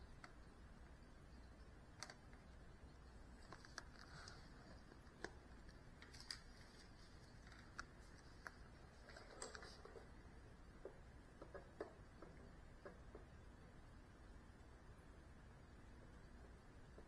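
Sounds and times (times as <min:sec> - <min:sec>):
faint clicks: 0:01.9 - 0:02.7, 0:03.3 - 0:13.4.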